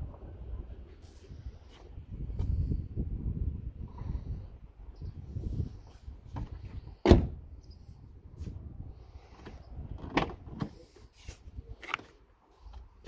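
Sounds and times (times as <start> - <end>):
car door slamming: 6.3 - 7.4.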